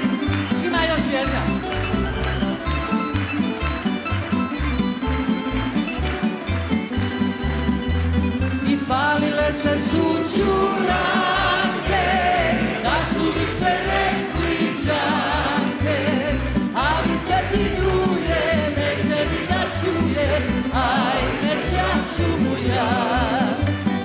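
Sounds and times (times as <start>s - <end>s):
plucked string instruments: 0.0s - 24.0s
person singing: 8.6s - 23.8s.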